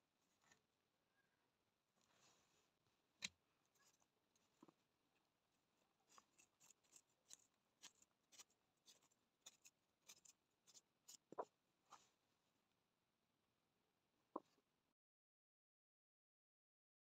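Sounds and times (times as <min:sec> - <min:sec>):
netting twine rustling and clicking: 0:06.0 - 0:11.5.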